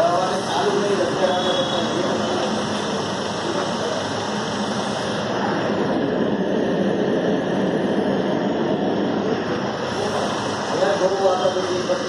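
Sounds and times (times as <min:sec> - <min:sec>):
machine whooshing steadily: 0:00.0 - 0:12.0.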